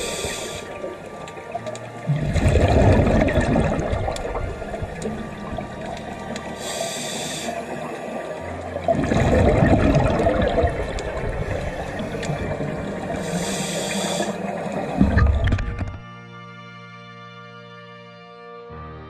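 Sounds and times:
regulator inhalation hiss: 0:00.0 - 0:00.8, 0:06.5 - 0:08.4, 0:13.1 - 0:14.6
exhaled bubbles rushing: 0:00.0 - 0:16.0.

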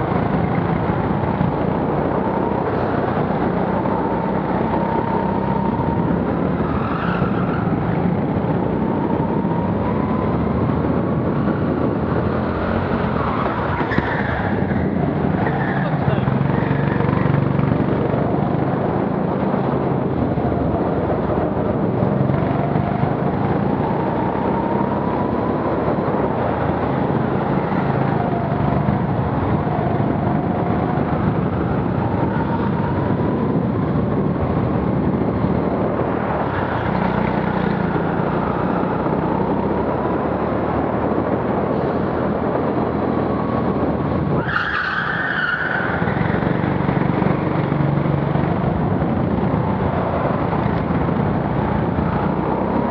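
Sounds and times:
tyre squeal: 0:44.4 - 0:46.3.

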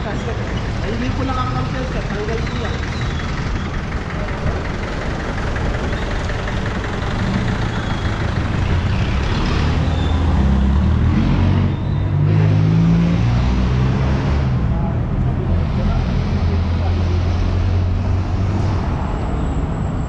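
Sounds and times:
vehicle engine running: 0:00.0 - 0:11.8
street traffic noise: 0:00.0 - 0:20.0.

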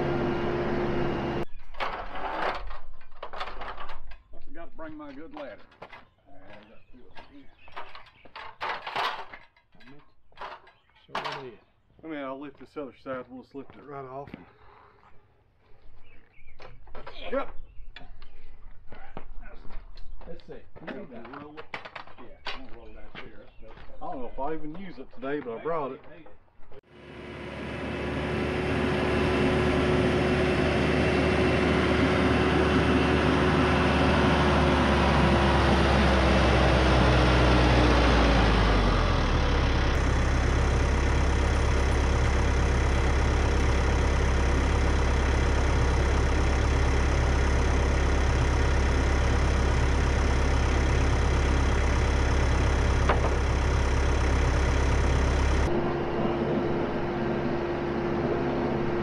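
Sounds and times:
tractor diesel engine running: 0:00.0 - 0:01.6, 0:26.9 - 0:59.0.

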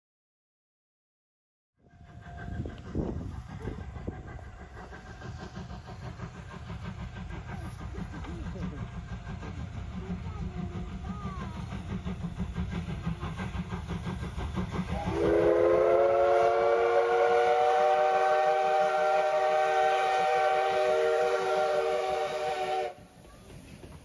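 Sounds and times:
multi-tone whistle: 0:14.9 - 0:23.0.

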